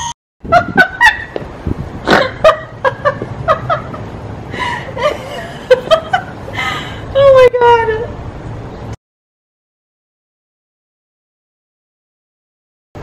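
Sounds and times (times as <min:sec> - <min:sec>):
woman laughing: 0:00.0 - 0:01.4, 0:02.0 - 0:07.4.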